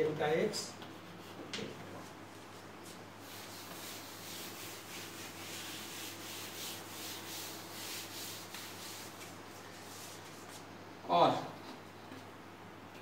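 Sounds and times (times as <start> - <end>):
cloth wiping chalkboard: 0.5 - 10.7.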